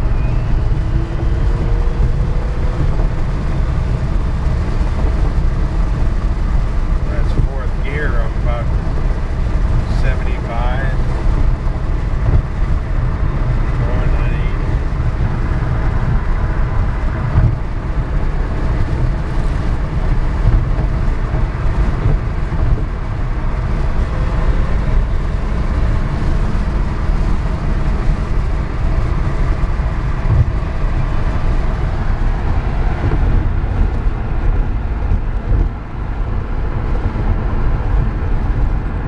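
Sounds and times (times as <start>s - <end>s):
road and wind rumble in car: 0.0s - 39.0s.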